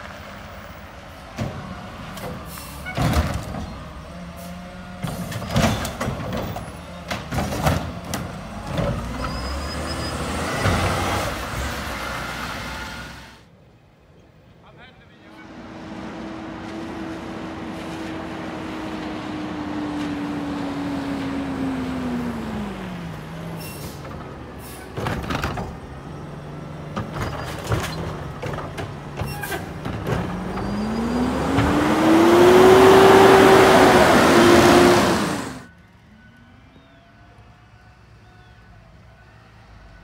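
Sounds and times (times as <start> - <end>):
garbage truck engine: 0.0 - 13.5, 15.3 - 37.0.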